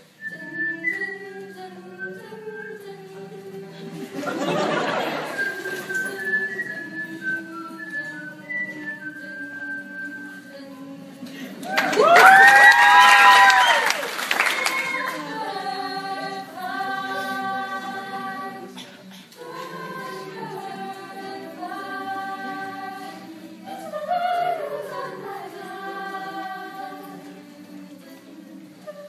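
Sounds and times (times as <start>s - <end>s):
choir singing a cappella: 0.0s - 29.0s
loud whooping cheer: 11.6s - 14.8s.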